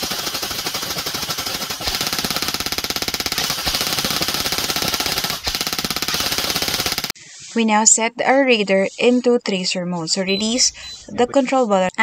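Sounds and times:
airsoft rifle full-auto firing: 0:00.0 - 0:07.1.

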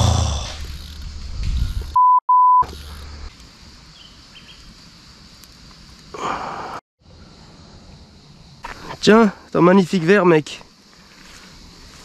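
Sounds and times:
outdoor background noise: 0:00.0 - 0:12.0
censor bleep: 0:02.0 - 0:02.7.

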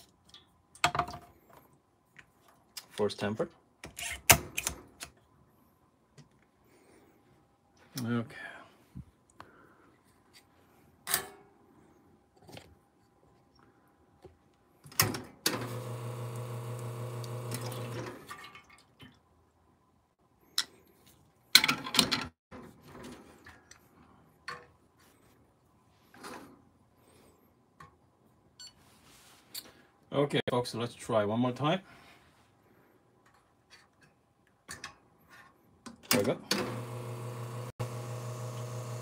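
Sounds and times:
espresso machine pump humming: 0:15.6 - 0:18.0, 0:36.6 - 0:39.0.

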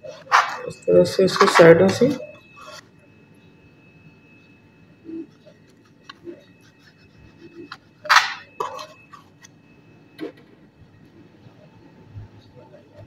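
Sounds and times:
knife cutting scrape: 0:02.6 - 0:02.9, 0:05.3 - 0:09.4.

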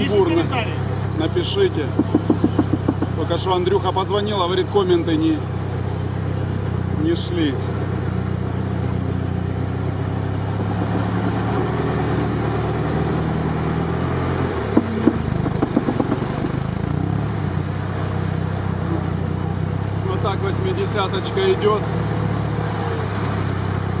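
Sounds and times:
vehicle engine running: 0:00.0 - 0:24.0
short knocks: 0:01.8 - 0:03.2, 0:14.6 - 0:16.8.

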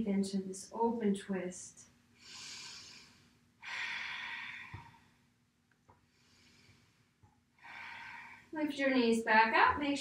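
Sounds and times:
woman breathing: 0:02.2 - 0:05.4, 0:06.0 - 0:08.6.

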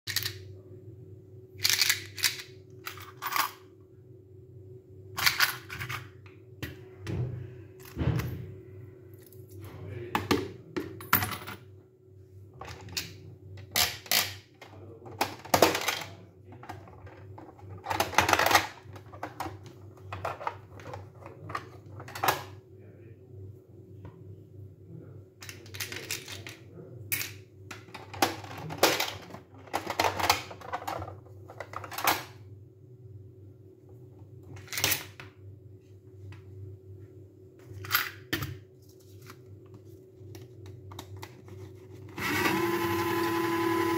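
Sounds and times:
steady low hum: 0:00.1 - 0:42.2.

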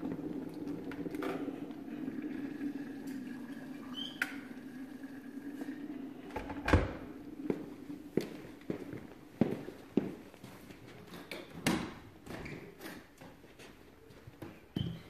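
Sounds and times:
water pouring into a mug: 0:00.0 - 0:09.1.

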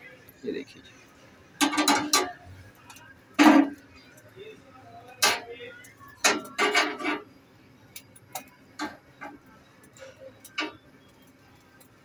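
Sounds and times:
flame ticks and crackles: 0:00.2 - 0:03.1, 0:07.8 - 0:12.0.

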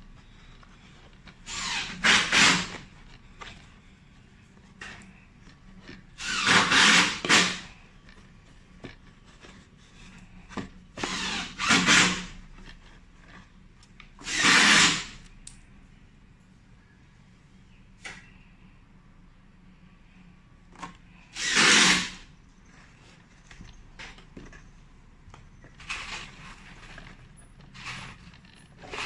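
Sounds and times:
cardboard rustling and scraping: 0:00.0 - 0:15.2, 0:22.6 - 0:29.0.

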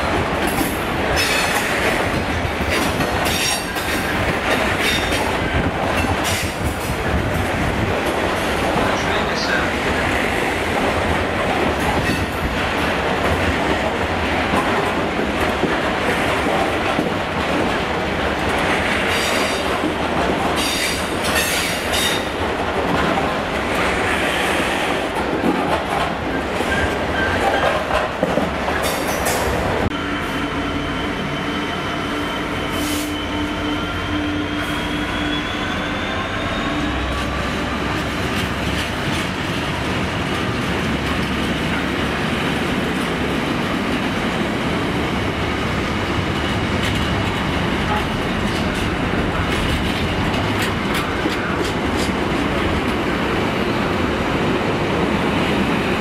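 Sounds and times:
train wheels clattering on rails: 0:00.0 - 0:29.9, 0:36.8 - 0:56.0.

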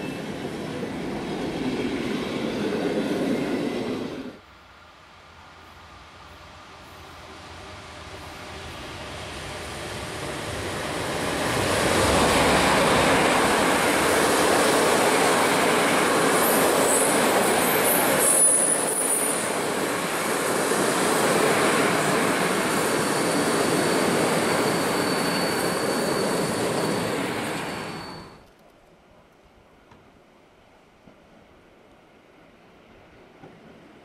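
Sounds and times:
train wheels rumbling on rails: 0:05.2 - 0:28.4
wheel squeals: 0:22.8 - 0:28.4.

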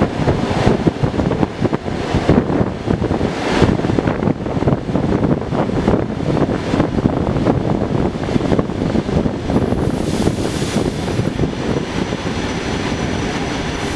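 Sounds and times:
train wheels rumbling and rattling: 0:00.0 - 0:13.9
wind buffeting microphone: 0:00.0 - 0:13.9
high hiss: 0:09.8 - 0:11.3.

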